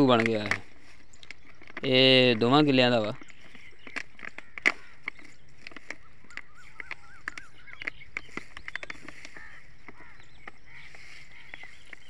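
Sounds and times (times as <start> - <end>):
birds calling: 0.0 - 12.0
plastic sachets crinkling: 0.0 - 12.0.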